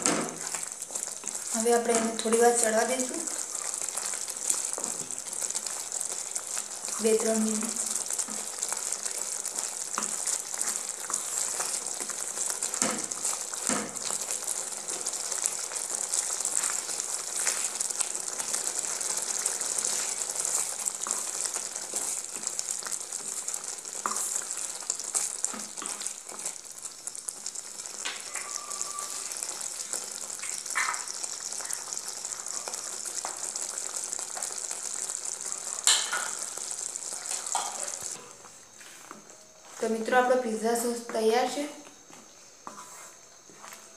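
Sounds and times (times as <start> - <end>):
sauce sizzling in a pan: 0.0 - 43.9
wooden spatula scraping a pan: 42.6 - 43.8.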